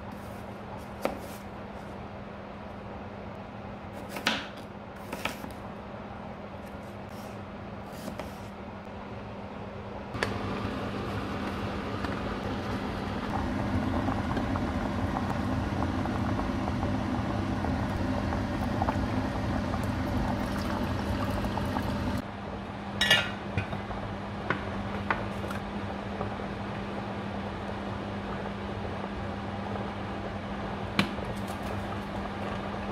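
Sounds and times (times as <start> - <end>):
low hum: 9.5 - 22.3
water pouring into saucepan: 19.7 - 22.2
kitchenware clinking: 23.0 - 23.7.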